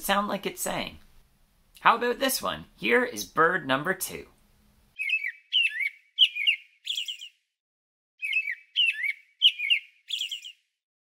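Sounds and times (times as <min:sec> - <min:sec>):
robin singing whistled phrases: 0:05.0 - 0:07.4, 0:08.2 - 0:10.7.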